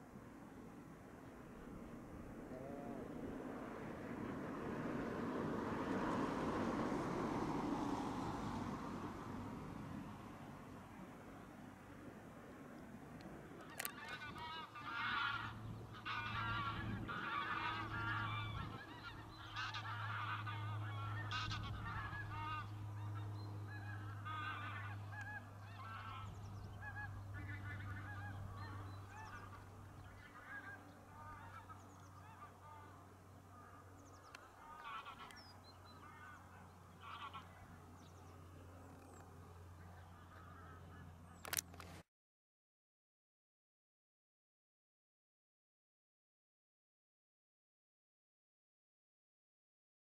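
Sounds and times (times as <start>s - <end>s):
geese honking: 13.6s - 41.6s.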